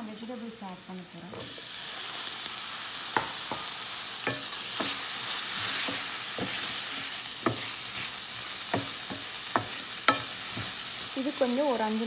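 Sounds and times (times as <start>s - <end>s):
vegetables sizzling in oil: 0.0s - 12.0s
wooden spoon scraping a pan: 3.2s - 11.2s.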